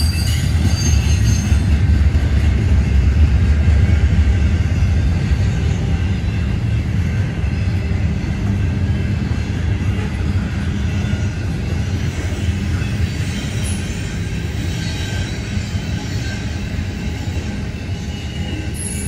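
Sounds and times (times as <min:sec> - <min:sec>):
high-pitched wheel squeals: 0:00.0 - 0:01.8, 0:12.1 - 0:19.0
train cars rumbling past: 0:00.0 - 0:19.0.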